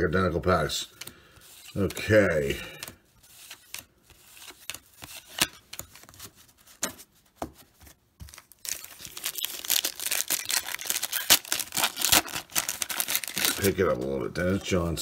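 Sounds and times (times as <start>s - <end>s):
paper wrapper being torn open: 8.4s - 13.9s.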